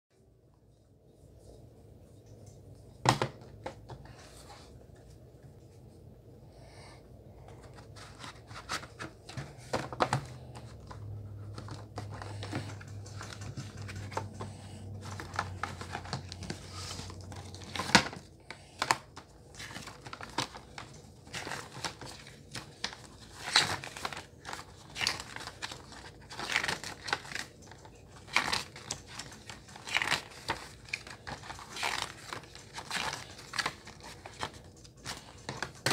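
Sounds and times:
paper rustling and crinkling: 7.4s - 35.9s.

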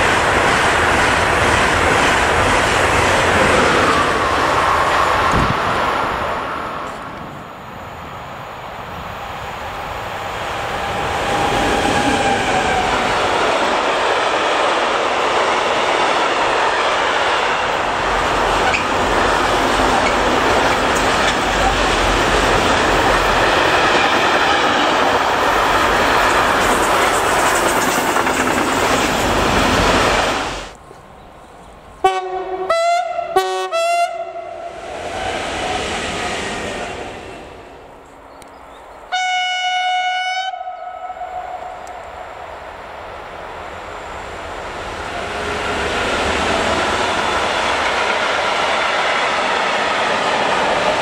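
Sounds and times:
freight train rolling on rails: 0.0s - 33.4s, 34.1s - 51.0s
approaching train: 0.0s - 51.0s
train horn blasts: 32.0s - 34.7s, 39.1s - 42.0s.

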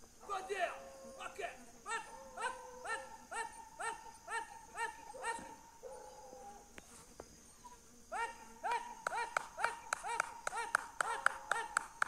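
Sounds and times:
insects buzzing: 0.0s - 12.0s
dogs barking: 1.9s - 6.7s, 8.3s - 11.9s.

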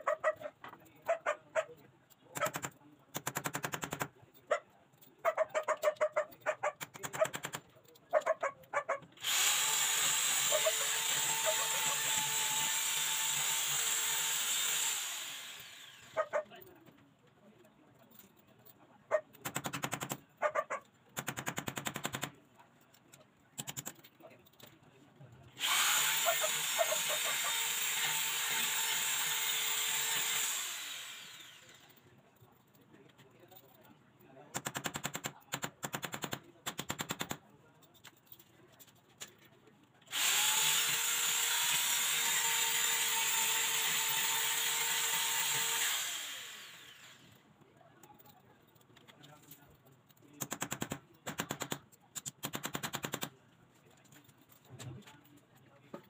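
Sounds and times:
electric drill boring into wall: 9.2s - 16.2s, 25.6s - 31.9s, 40.1s - 47.4s.

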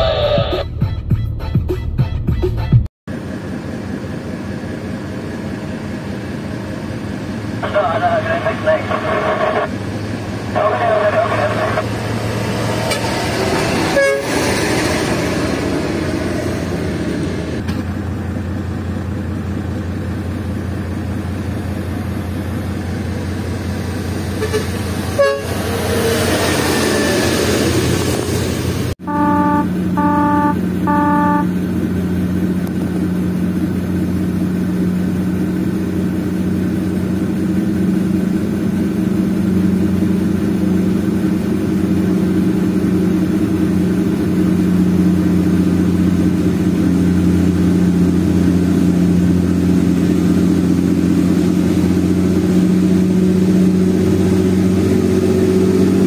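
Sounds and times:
truck diesel engines running: 3.1s - 56.0s
truck horn toots: 13.9s - 14.4s, 24.3s - 25.7s, 29.0s - 31.8s.

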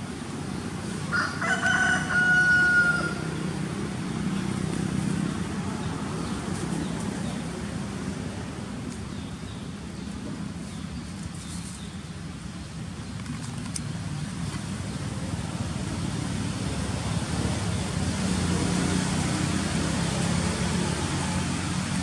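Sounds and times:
rooster crowing: 1.1s - 3.4s.

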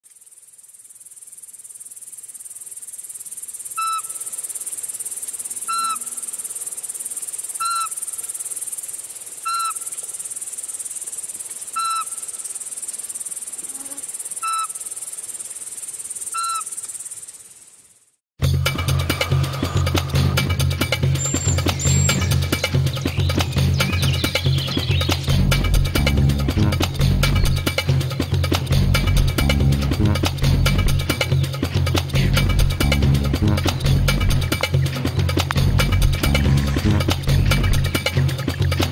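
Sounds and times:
insect chorus: 0.0s - 29.9s
owl whistled notes: 3.8s - 4.2s, 5.7s - 6.2s, 7.6s - 8.0s, 9.4s - 9.9s, 11.8s - 12.2s, 14.4s - 14.8s, 16.3s - 16.8s, 21.1s - 25.2s.

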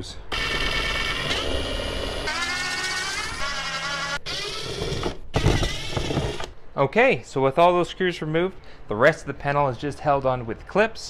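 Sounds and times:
power driver whining: 0.3s - 6.5s.

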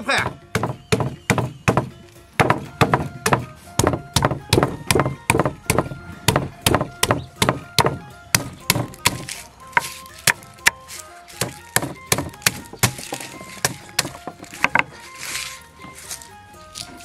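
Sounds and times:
stone thudding on wooden block: 0.2s - 10.8s, 11.4s - 15.0s.

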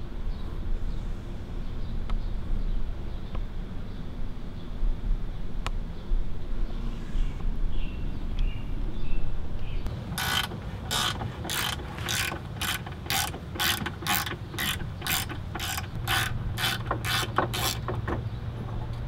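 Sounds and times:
hand ratchet clicking: 10.1s - 18.2s.

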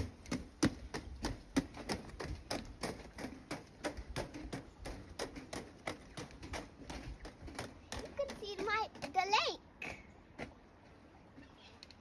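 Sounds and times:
footsteps on wooden boardwalk: 0.0s - 9.6s.

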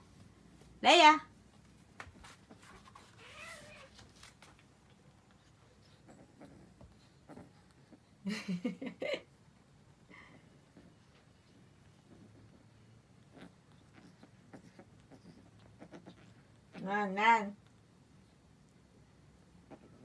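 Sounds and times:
kittens play-wrestling: 1.4s - 8.2s, 9.3s - 16.9s.

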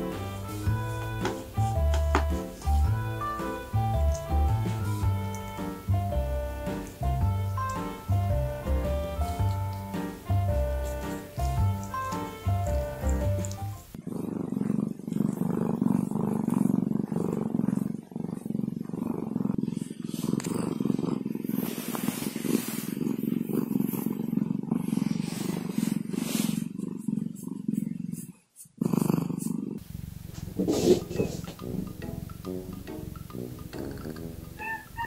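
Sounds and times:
music: 0.0s - 14.0s, 30.9s - 35.0s
rustling of fur and bedding: 0.0s - 14.0s, 18.6s - 28.8s, 29.8s - 31.6s
cat purring: 0.0s - 35.0s.

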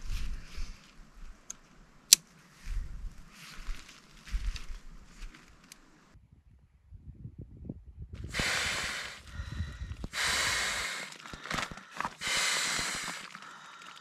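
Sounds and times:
breaths blown into a valve: 8.3s - 11.5s, 12.1s - 14.0s.

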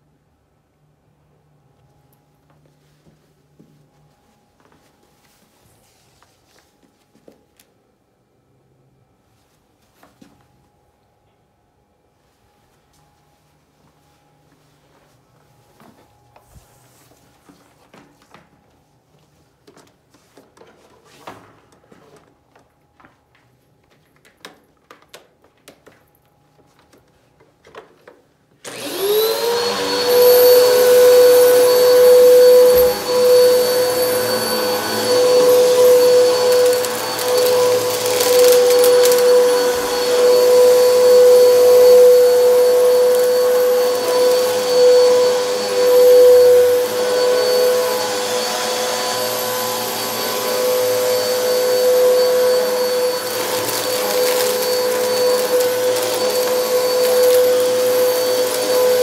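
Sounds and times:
vacuum cleaner motor whine: 28.6s - 59.0s.

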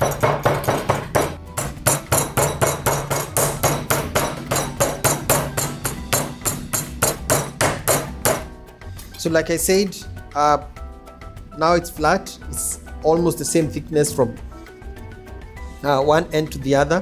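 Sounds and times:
meat mallet pounding on board: 0.0s - 8.6s
background music: 0.0s - 17.0s.

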